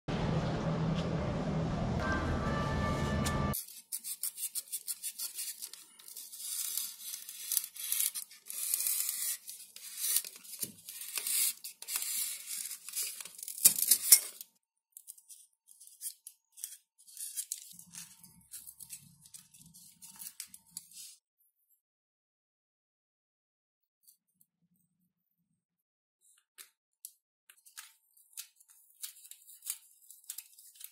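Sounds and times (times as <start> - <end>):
craft knife cutting foam: 3.6 - 14.2.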